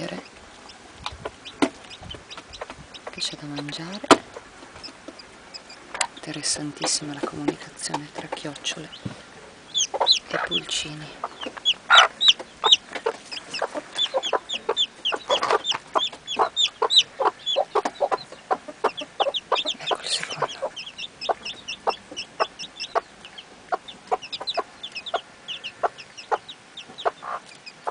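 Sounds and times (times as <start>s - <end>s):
chicks peeping: 0.0s - 27.9s
hen clucking: 0.0s - 27.9s.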